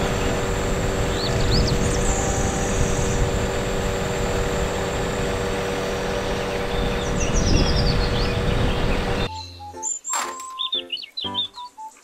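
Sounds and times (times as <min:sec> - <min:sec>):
hydraulic hum: 0:00.0 - 0:09.3
truck engine idling: 0:00.0 - 0:09.3.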